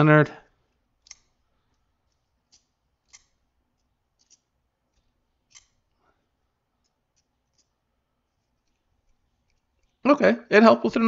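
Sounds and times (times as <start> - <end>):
folding knife blade clicking: 1.0 - 1.4, 2.5 - 5.8.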